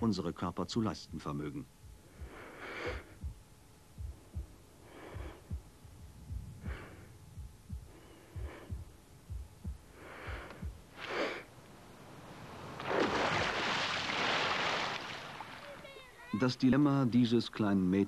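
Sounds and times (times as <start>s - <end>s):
heartbeat thumping: 1.6s - 11.1s
slow deep breaths: 2.0s - 3.4s, 4.0s - 12.5s.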